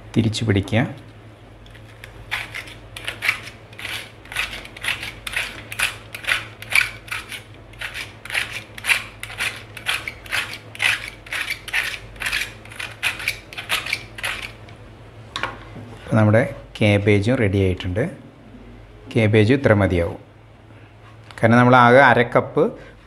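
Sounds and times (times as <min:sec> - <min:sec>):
peeler shaving cabbage: 0:01.7 - 0:14.7.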